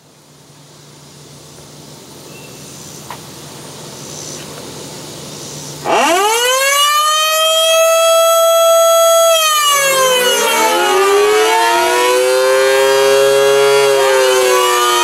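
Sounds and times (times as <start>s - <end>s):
warning siren winding up: 5.8s - 15.0s.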